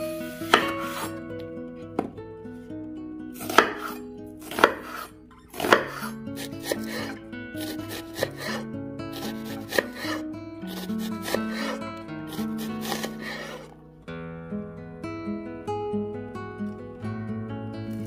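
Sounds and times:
soft background music: 0:00.0 - 0:18.0
knife chopping onion on wooden board: 0:00.4 - 0:01.2, 0:03.4 - 0:13.7.

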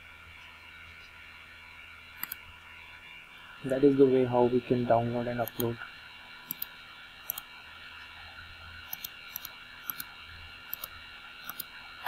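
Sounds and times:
faint steady hum: 0:00.0 - 0:12.0
computer mouse clicking: 0:02.2 - 0:02.4, 0:05.4 - 0:05.7, 0:06.5 - 0:07.5, 0:08.8 - 0:10.1, 0:10.7 - 0:11.7.

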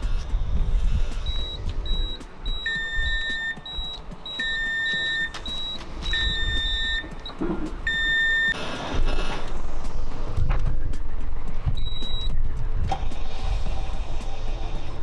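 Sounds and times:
longer low beep: 0:01.3 - 0:08.6, 0:11.8 - 0:12.4
short high beeps: 0:01.3 - 0:08.6.

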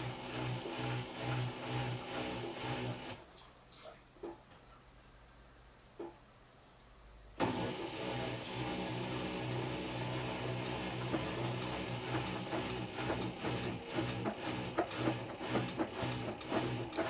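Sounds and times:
washing machine humming: 0:00.0 - 0:03.4, 0:07.4 - 0:17.0
washing machine clicks: 0:10.4 - 0:17.0.

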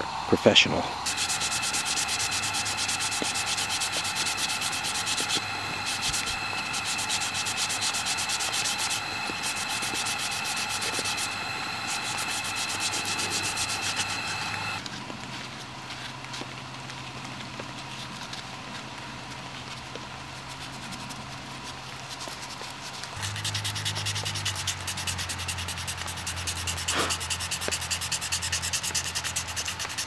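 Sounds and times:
sandpaper rubbing on wood: 0:01.0 - 0:14.8, 0:20.4 - 0:30.0.

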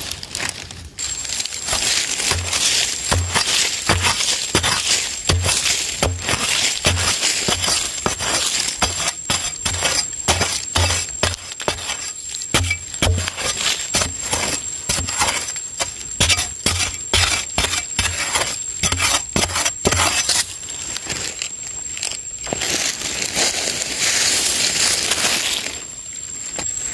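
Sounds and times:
digging tool chopping dry soil: 0:01.0 - 0:20.4.

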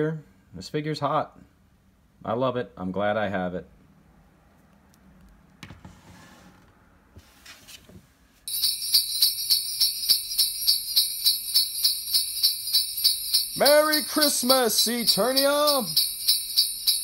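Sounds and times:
sleigh bells jingling: 0:08.5 - 0:17.0.

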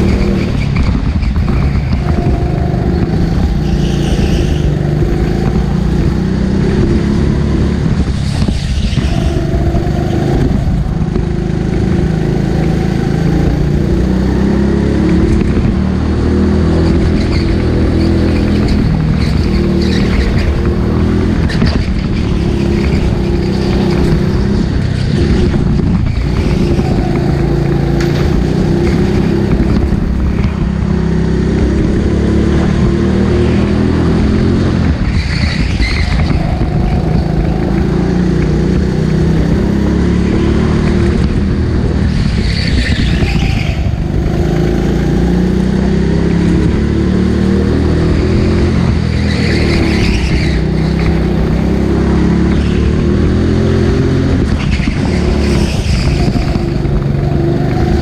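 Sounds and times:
go-kart engine running hard: 0:00.0 - 0:58.0.

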